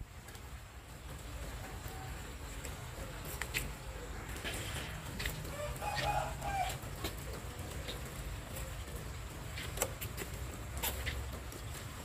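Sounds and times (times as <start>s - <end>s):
light rain falling: 0.0s - 12.0s.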